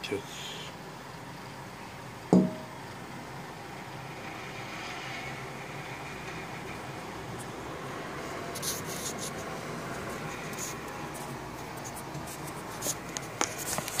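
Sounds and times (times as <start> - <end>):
frying pan handling noise: 2.4 - 2.7.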